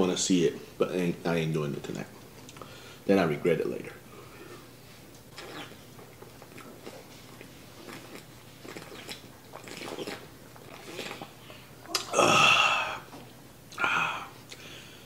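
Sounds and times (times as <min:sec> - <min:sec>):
man swallowing: 0:08.7 - 0:14.6.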